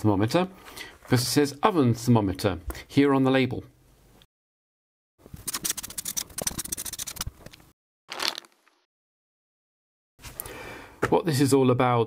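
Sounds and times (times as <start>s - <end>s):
scratching on paper: 5.4s - 7.3s.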